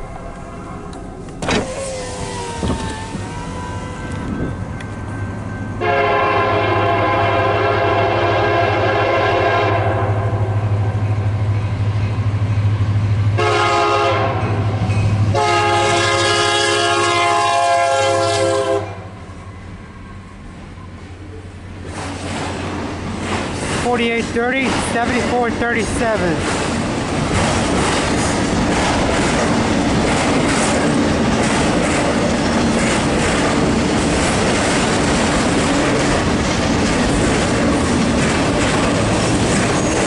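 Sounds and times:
locomotive rumble: 0.0s - 40.0s
locomotive air horn blasts: 5.8s - 10.5s, 13.4s - 14.6s, 15.3s - 19.1s.

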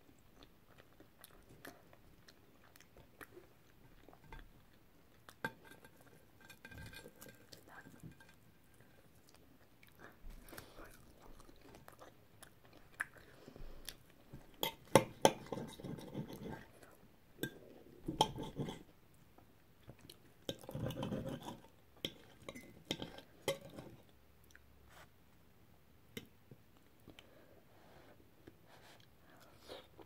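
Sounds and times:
chewing: 0.1s - 18.9s.

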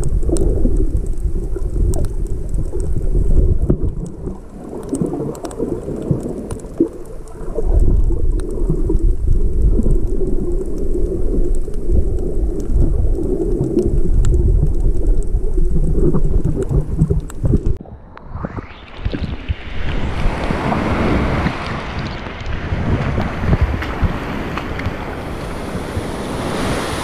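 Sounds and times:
faint clicks: 0.0s - 18.3s
underwater rumble of moving water: 0.0s - 27.0s.

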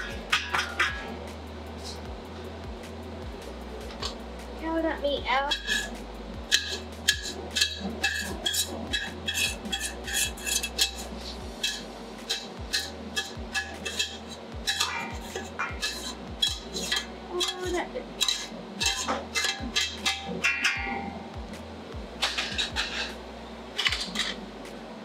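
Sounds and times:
metal spoon scraping pot: 5.5s - 21.2s, 22.2s - 23.2s.

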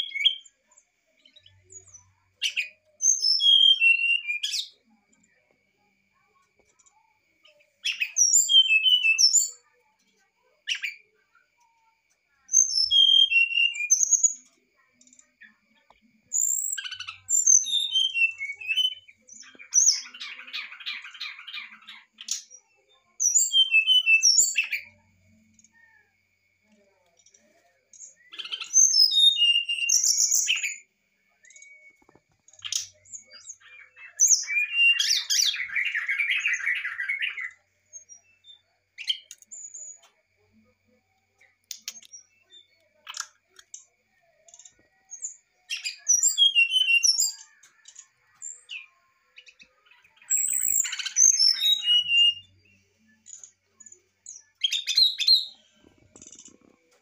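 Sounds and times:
bird singing fluting whistles: 2.5s - 4.6s, 7.9s - 9.5s, 12.6s - 14.3s, 16.4s - 19.1s, 23.3s - 24.7s, 28.4s - 30.8s, 45.7s - 47.4s, 50.3s - 52.5s.

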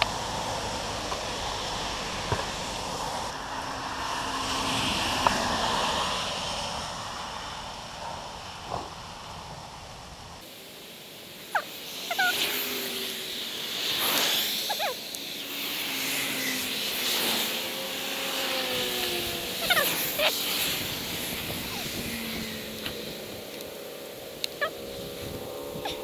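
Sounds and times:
tyres hissing on wet road: 0.0s - 25.7s
chirping bird calls: 11.4s - 12.6s, 14.6s - 15.4s.

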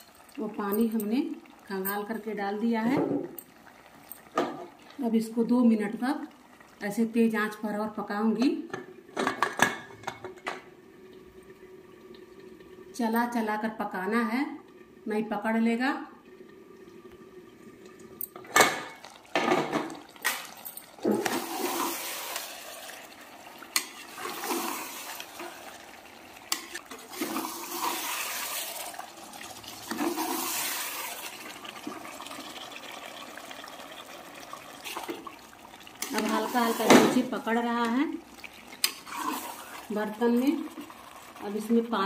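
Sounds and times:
food sizzling: 0.0s - 9.2s, 16.2s - 42.0s
spatula scraping pot: 23.7s - 25.8s, 38.7s - 40.0s.

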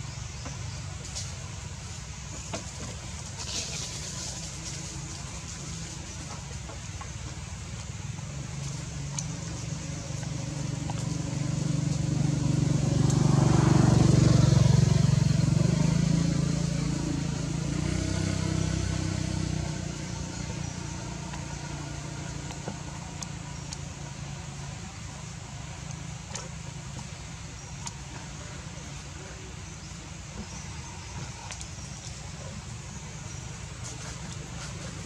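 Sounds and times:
vehicle engine passing by: 8.6s - 35.0s.

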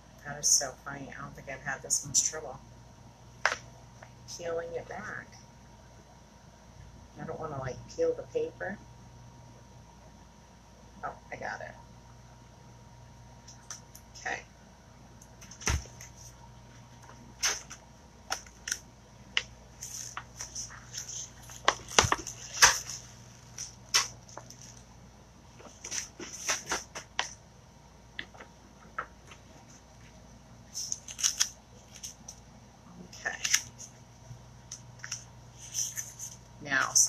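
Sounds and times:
vinyl sheet clicks and crinkles: 15.4s - 16.3s, 17.0s - 24.9s, 25.6s - 27.4s, 28.2s - 32.4s, 33.3s - 34.0s, 34.7s - 36.4s.

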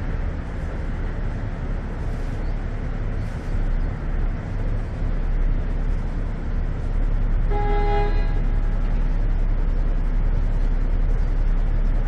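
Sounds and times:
engines and traffic rumble: 0.0s - 12.0s
horn sounding: 7.5s - 8.7s.

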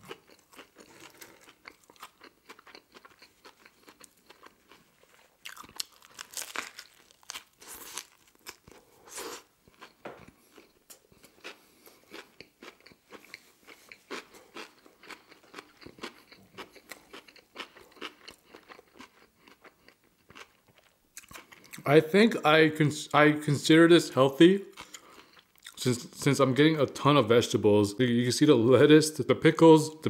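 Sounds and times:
chewing with wet crunches: 0.0s - 8.8s, 9.6s - 21.8s.

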